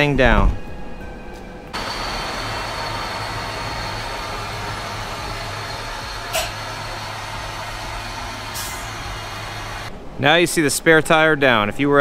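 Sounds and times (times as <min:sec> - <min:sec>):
mechanical whine with high tone: 0:01.8 - 0:09.9.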